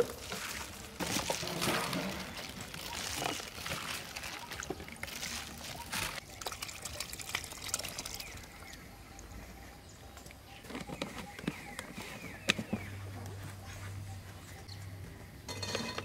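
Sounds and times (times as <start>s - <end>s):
liquid dribbling: 0.0s - 8.8s
small wet clicks and splats: 2.4s - 9.3s.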